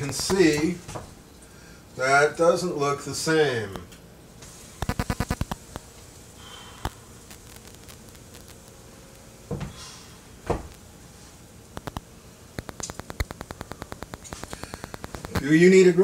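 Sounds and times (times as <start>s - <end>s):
tortilla sizzling in oil: 4.4s - 8.9s.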